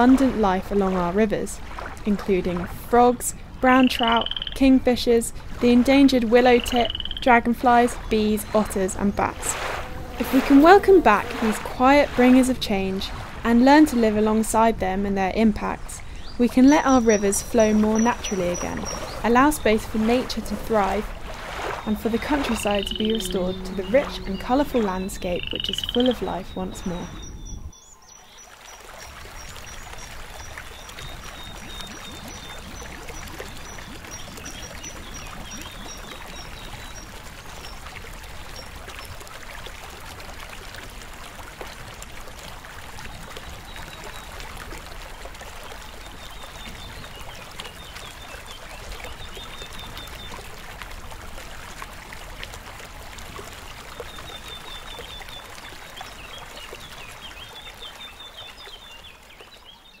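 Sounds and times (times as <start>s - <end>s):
stream water trickling: 0.0s - 60.0s
songbirds singing and trilling: 3.6s - 39.1s, 45.6s - 50.6s, 53.9s - 60.0s.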